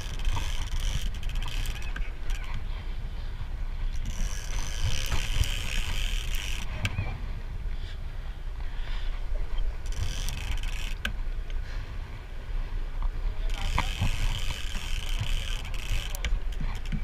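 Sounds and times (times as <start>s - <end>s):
fishing reel clicking and whirring: 0.0s - 2.7s, 3.9s - 6.9s, 9.8s - 11.2s, 13.4s - 17.0s
boat engine rumbling: 0.0s - 17.0s
wind on microphone: 0.0s - 17.0s.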